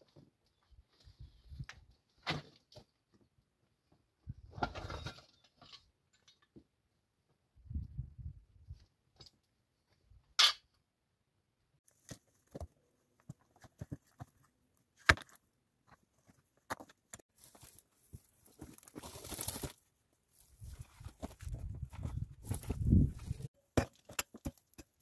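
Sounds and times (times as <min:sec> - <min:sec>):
footsteps crunching on rubble: 0:15.9 - 0:24.8
stones and dirt scraping: 0:16.3 - 0:25.0.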